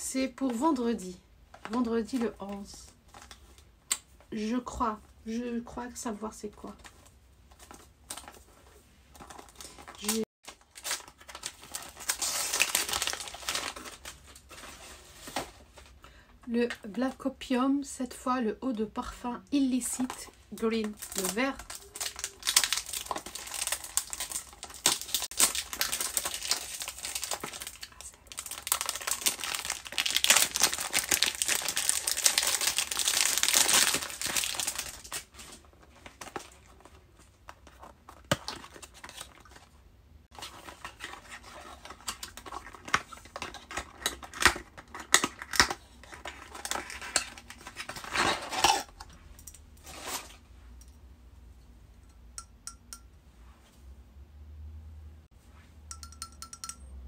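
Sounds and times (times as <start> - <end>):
packaging crinkling and tearing: 9.2 - 15.5, 19.9 - 39.7, 40.3 - 49.0.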